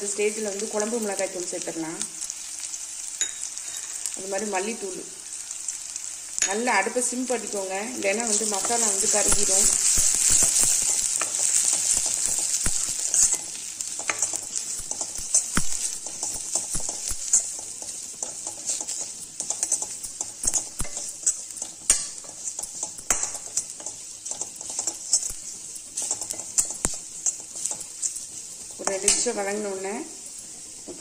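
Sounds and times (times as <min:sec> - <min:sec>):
masala sizzling in oil: 0:00.0 - 0:31.0
steel ladle scraping a pan: 0:08.2 - 0:29.5.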